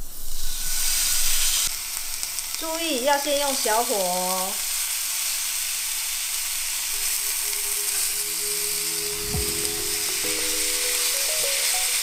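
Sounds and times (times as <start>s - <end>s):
pork sizzling in frying pan: 0.0s - 12.0s.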